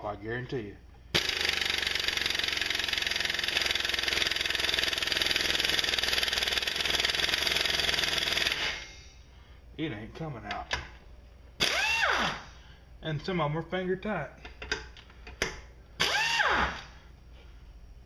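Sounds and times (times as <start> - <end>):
pneumatic impact wrench hammering: 1.1 - 8.8, 11.6 - 12.4, 14.5 - 17.0.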